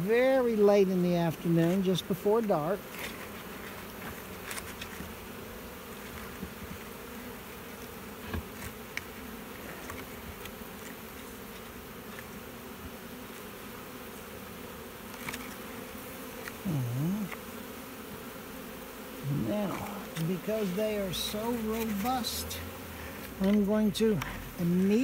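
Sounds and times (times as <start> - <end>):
bees humming: 0.0 - 25.0.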